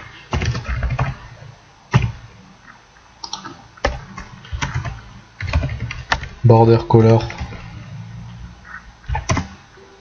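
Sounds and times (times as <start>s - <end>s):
computer keyboard typing: 0.3s - 1.2s, 3.2s - 6.4s, 9.1s - 9.6s.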